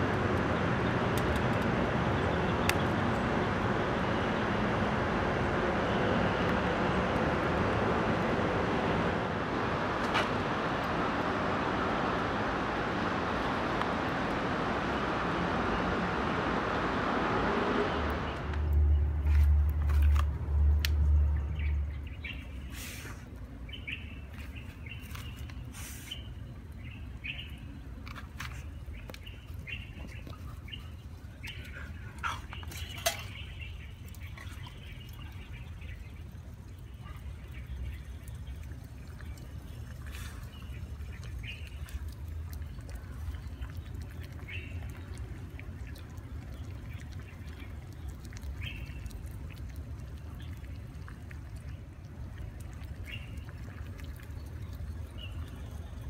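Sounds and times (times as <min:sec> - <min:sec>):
stove burning with rushing noise: 0:00.0 - 0:21.2
small birds chirping: 0:00.4 - 0:04.5, 0:21.2 - 0:56.0.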